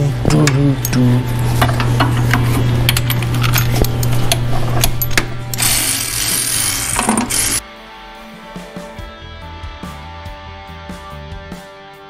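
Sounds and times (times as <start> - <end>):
steady low hum: 0.0 - 7.6.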